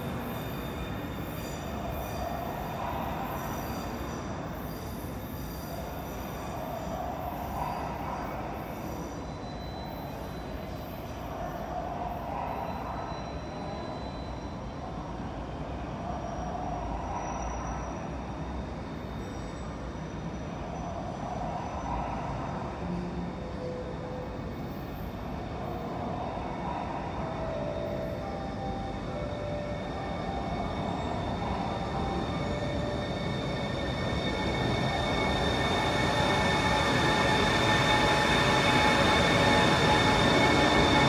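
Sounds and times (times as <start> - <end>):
high wheel squeal: 0.0 - 22.2, 23.4 - 41.0
train wheels rumbling on rail: 0.0 - 41.0.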